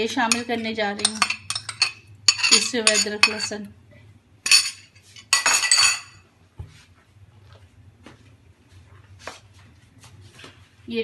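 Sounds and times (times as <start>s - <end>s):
metal spoon clinking in bowl: 0.1s - 3.6s, 4.4s - 6.2s.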